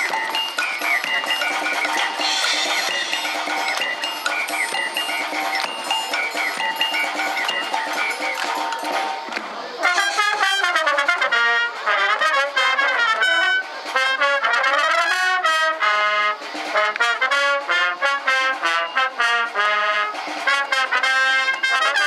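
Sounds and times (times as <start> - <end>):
wind band playing lively piece: 0.0 - 22.0.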